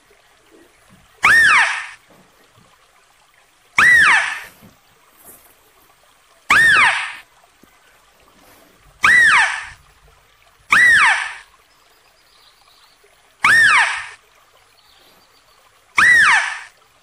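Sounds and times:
mouse-deer calling: 1.2 - 2.0, 3.8 - 4.5, 6.5 - 7.2, 9.0 - 9.8, 10.7 - 11.4, 13.4 - 14.2, 16.0 - 16.7.

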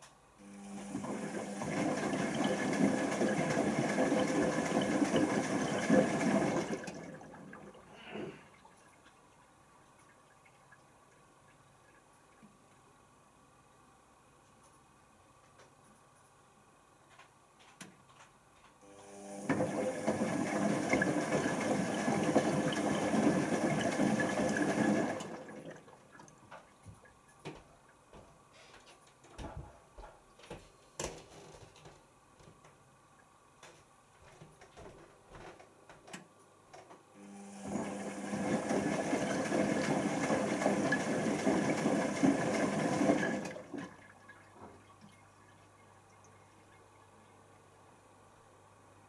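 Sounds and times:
water rushing into washing machine: 0.4 - 12.4, 19.0 - 27.2, 37.2 - 46.8.

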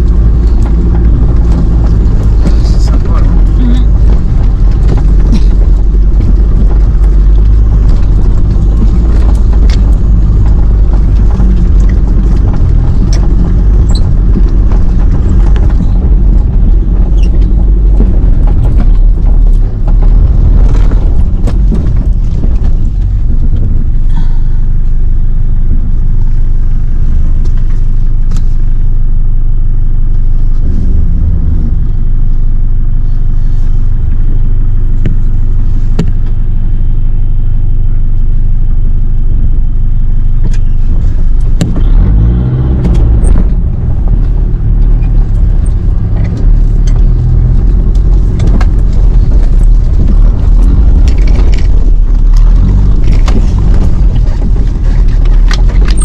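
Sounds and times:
vehicle engine low rumble: 0.0 - 56.0
wheels knocking over rocks: 44.8 - 56.0.

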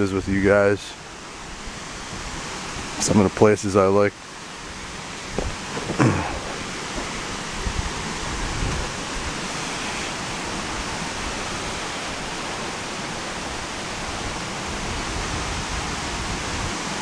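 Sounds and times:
waterfall and creek rushing: 0.0 - 17.0
soft thumps: 5.3 - 7.8.

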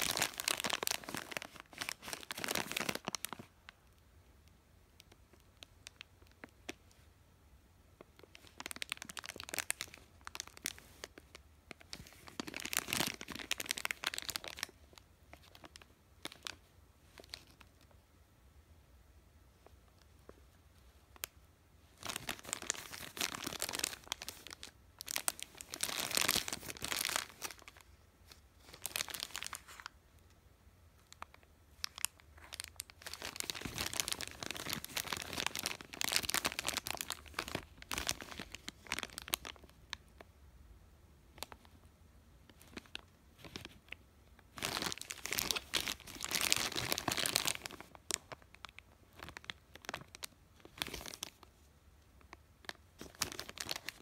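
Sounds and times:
plastic bags crinkling: 0.0 - 3.6, 8.2 - 17.8, 21.9 - 30.0, 31.1 - 39.8, 44.5 - 51.5, 52.3 - 54.0.

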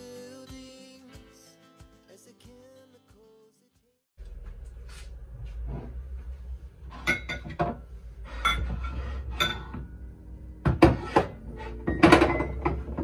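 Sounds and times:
coffee mugs clinking: 6.9 - 9.9, 10.6 - 13.0.

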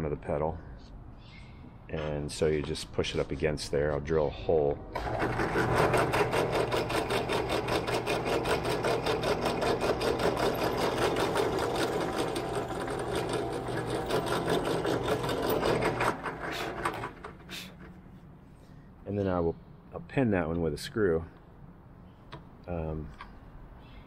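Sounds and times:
drill press motor hum: 5.0 - 18.0.

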